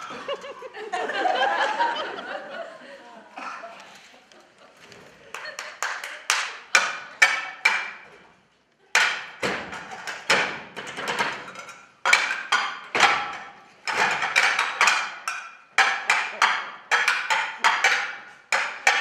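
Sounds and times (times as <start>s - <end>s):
hands and kitchenware striking desks: 5.3s - 8.2s, 8.9s - 19.0s.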